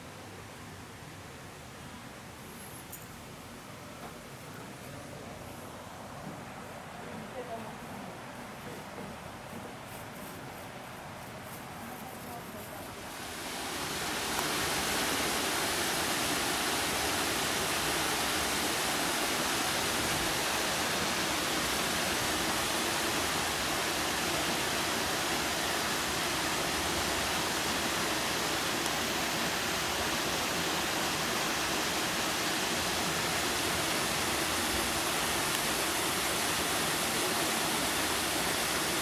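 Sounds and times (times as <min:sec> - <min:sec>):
water rushing: 0:12.9 - 0:39.0.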